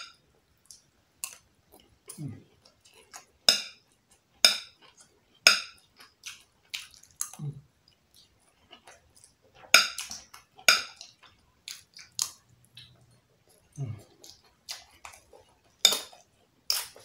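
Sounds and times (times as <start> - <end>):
eating smacks and clicks: 5.9 - 17.0.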